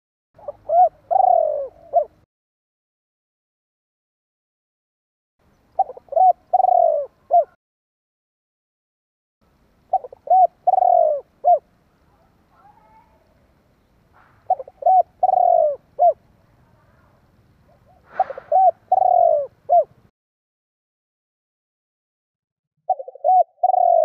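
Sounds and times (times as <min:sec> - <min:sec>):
dove cooing: 0:00.4 - 0:02.2, 0:05.8 - 0:07.6, 0:09.9 - 0:11.7, 0:14.4 - 0:16.2, 0:17.7 - 0:20.0, 0:22.9 - 0:24.0.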